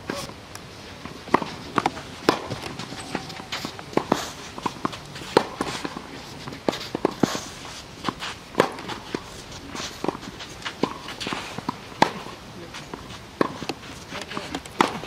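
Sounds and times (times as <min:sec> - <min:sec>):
rackets striking tennis ball: 0:01.0 - 0:15.0
shoes scuffing on clay: 0:01.0 - 0:15.0
ball bouncing: 0:01.3 - 0:07.2.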